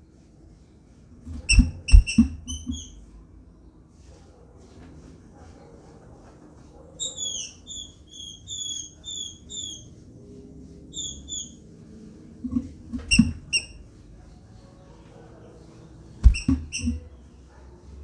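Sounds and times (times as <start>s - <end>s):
bird hopping on wooden perch: 1.3s - 3.0s, 16.2s - 17.1s.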